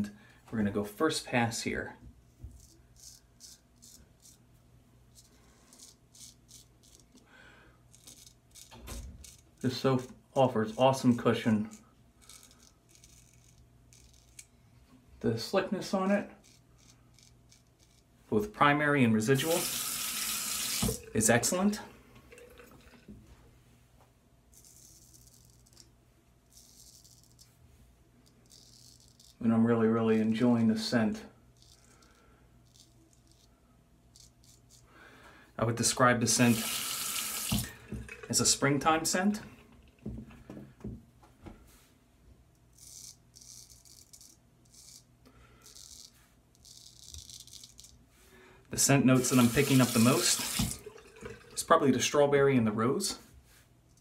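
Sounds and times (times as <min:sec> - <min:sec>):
razor scraping stubble: 0:16.0 - 0:18.1, 0:42.8 - 0:45.1.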